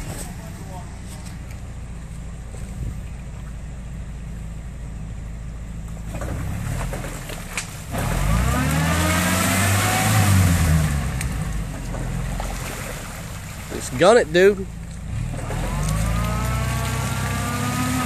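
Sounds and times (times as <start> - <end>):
pickup engine idling and revving: 0.0 - 18.0
wheels churning in mud: 5.9 - 18.0.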